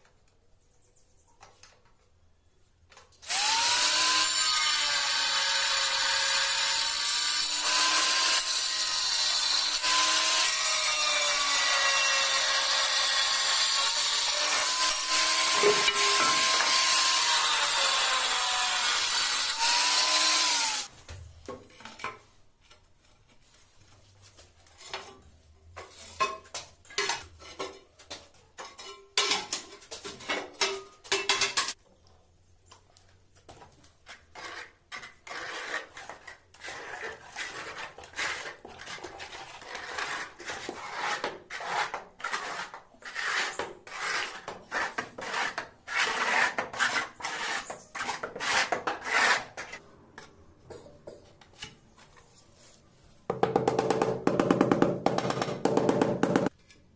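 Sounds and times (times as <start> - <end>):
angle grinder cutting tile: 3.2 - 20.9, 39.4 - 49.8
trowel scraping on concrete: 7.1 - 20.9, 33.7 - 53.0.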